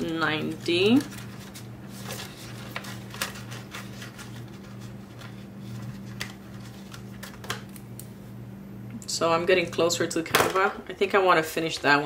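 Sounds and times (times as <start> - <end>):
paper bills rustling: 0.0 - 7.6
steady low hum: 0.0 - 12.0.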